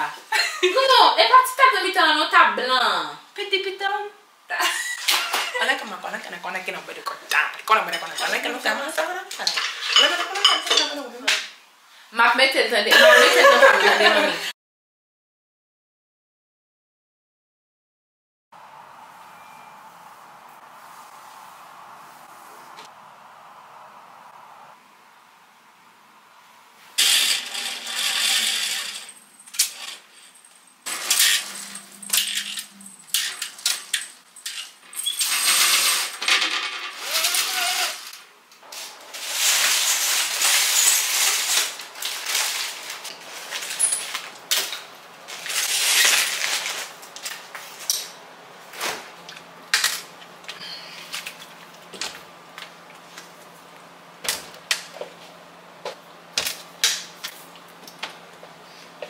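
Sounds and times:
clicks and clinks of objects: 0:29.4 - 0:37.1
rustling: 0:36.9 - 0:47.9.

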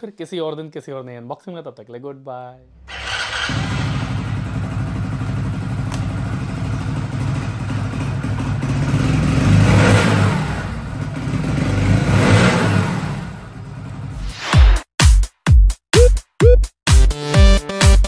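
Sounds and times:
motorcycle engine idling and revving: 0:02.9 - 0:14.2.

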